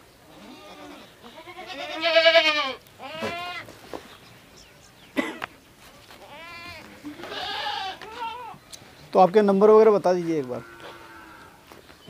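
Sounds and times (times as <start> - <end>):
goats bleating: 0.3 - 3.7, 5.9 - 8.6, 10.4 - 11.7.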